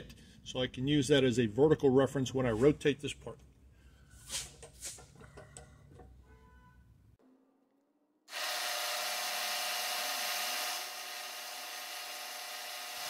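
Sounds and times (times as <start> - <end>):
milling machine cutting metal: 8.3 - 13.0.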